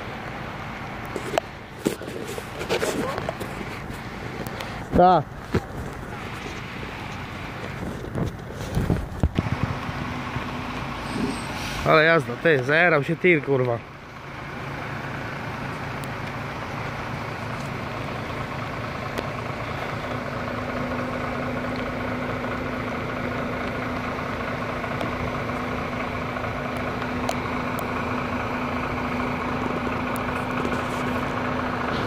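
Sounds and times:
vehicle engine idling: 0.0 - 32.0.

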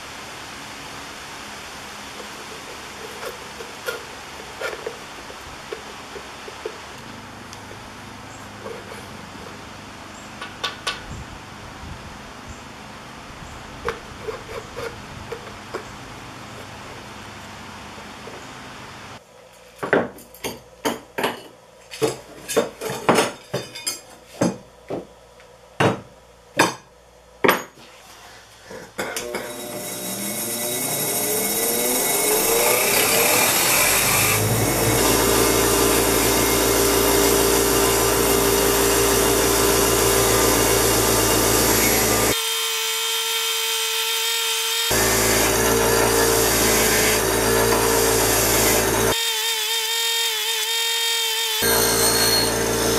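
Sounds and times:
bench grinder whining: 29.0 - 52.9.

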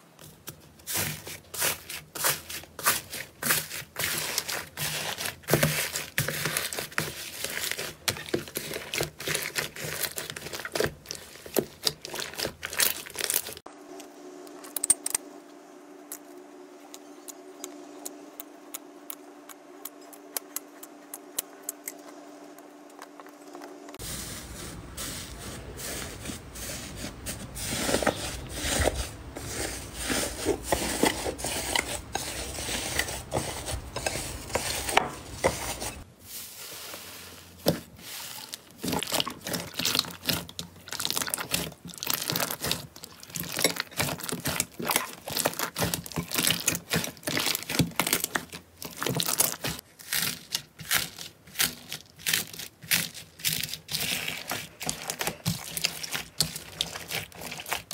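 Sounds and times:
slime squelching and popping: 38.8 - 57.9.

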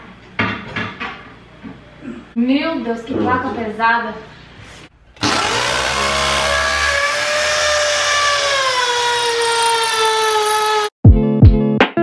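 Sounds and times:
electric drill boring into tile: 5.2 - 10.9.

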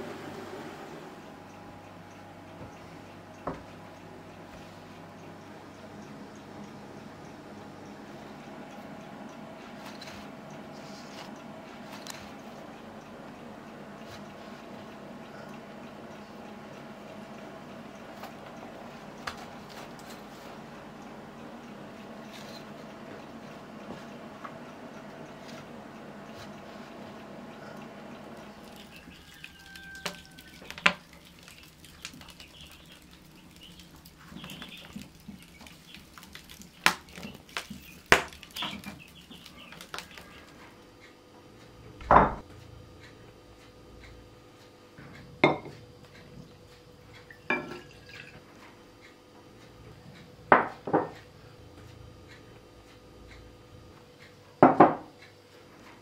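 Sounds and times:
faint steady hum: 0.0 - 56.0
crockery and spoon clinking on table: 47.5 - 48.2.

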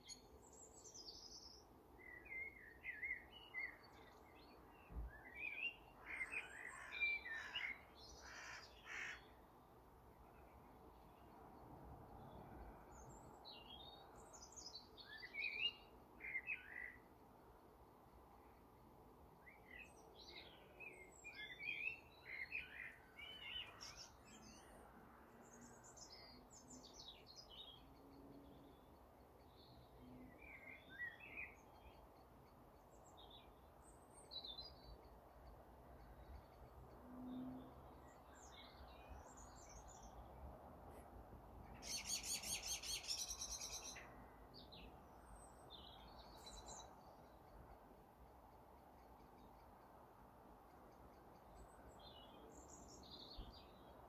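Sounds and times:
small birds chirping: 0.0 - 9.4, 10.1 - 17.1, 19.4 - 54.0
low background hiss: 0.0 - 54.0.

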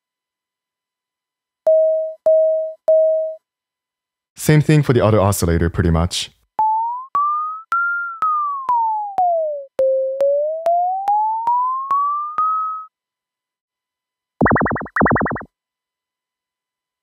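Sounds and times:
synth short beeps gliding pitch: 14.4 - 15.5.

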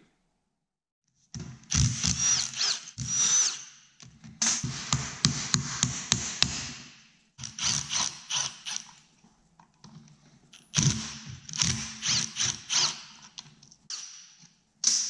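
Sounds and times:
cordless drill running: 1.7 - 3.6, 11.6 - 13.1.

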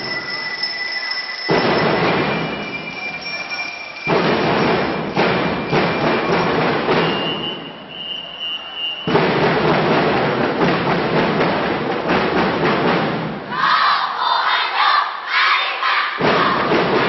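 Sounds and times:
drums striking loud accents: 0.0 - 14.4, 16.1 - 17.0
marching band playing: 1.5 - 8.4, 9.0 - 14.0, 16.2 - 17.0.

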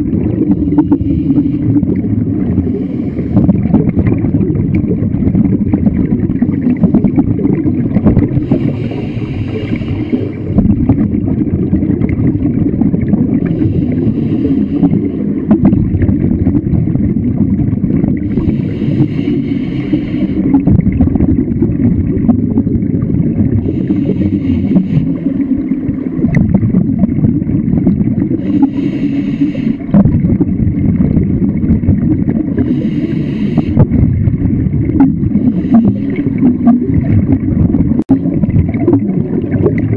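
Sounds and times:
water rushing underwater: 0.0 - 39.9
regulator breathing hiss: 8.4 - 10.5, 18.3 - 20.6, 28.4 - 29.8, 32.6 - 33.8.

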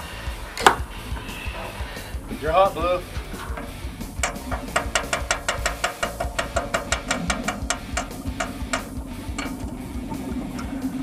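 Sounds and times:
even ticking: 0.0 - 11.0
welding arc hum: 0.0 - 11.0.

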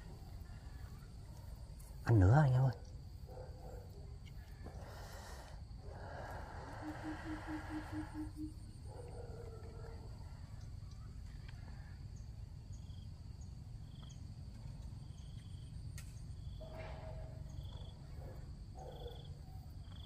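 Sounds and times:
short insect chirp: 0.0 - 20.0
high-pitched insect drone: 6.1 - 8.8.

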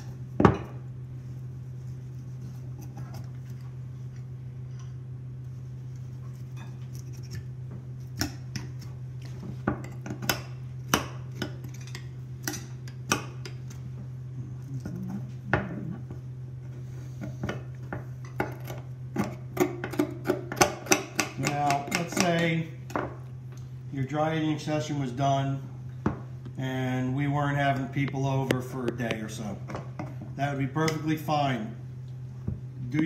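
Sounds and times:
steady low hum: 0.0 - 33.0
knife scraping meat off bone: 6.0 - 8.9.

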